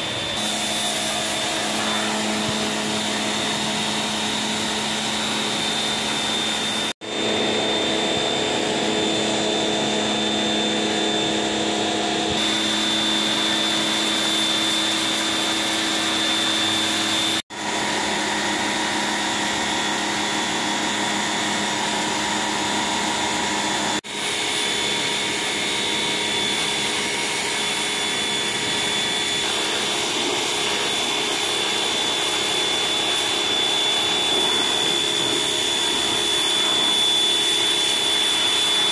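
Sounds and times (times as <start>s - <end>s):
water jet hissing on stone floor: 0.0s - 6.9s, 12.4s - 19.1s, 21.8s - 38.9s
pressure washer motor humming: 0.0s - 38.9s.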